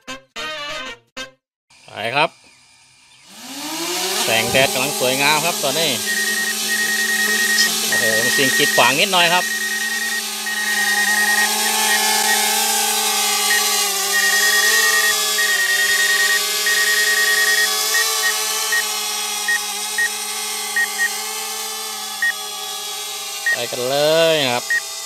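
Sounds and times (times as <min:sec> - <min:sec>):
drone propellers buzzing: 0:01.8 - 0:25.0
rapid high beeps: 0:04.4 - 0:18.9, 0:20.8 - 0:21.2, 0:23.5 - 0:23.7, 0:24.6 - 0:24.9.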